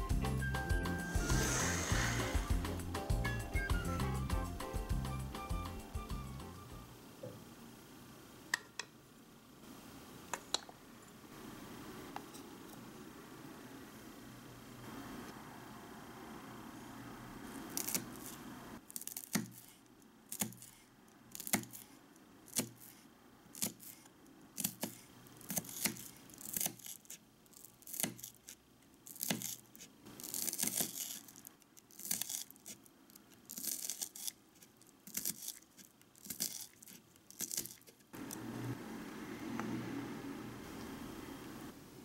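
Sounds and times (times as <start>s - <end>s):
knife slicing onion: 17.7s - 27.2s, 27.8s - 31.4s, 33.5s - 38.4s.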